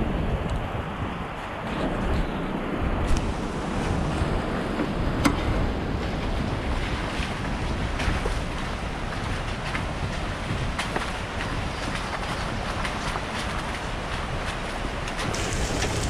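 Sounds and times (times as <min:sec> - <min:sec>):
wind rushing over microphone: 0:00.0 - 0:16.0
truck engine rumble: 0:15.2 - 0:16.0.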